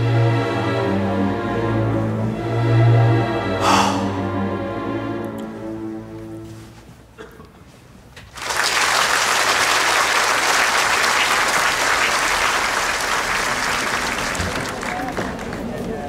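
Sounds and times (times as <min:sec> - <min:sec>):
music: 0:00.0 - 0:07.2
audience applauding: 0:08.3 - 0:16.0.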